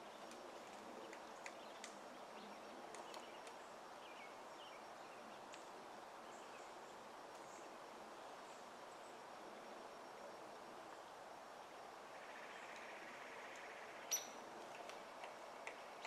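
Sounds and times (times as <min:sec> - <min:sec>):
background hiss: 0:00.0 - 0:16.0
woodpecker tapping on tree: 0:14.6 - 0:16.0.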